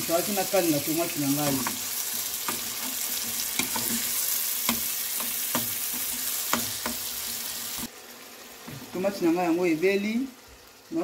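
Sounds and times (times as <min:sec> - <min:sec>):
vegetables sizzling in oil: 0:00.0 - 0:11.0
spoon scraping pan: 0:01.3 - 0:07.9.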